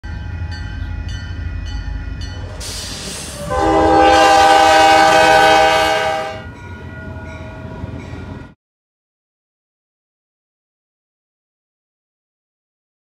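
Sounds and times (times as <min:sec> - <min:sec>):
crossing signal bell ringing: 0:00.0 - 0:08.6
locomotive air horn blast: 0:02.6 - 0:06.5.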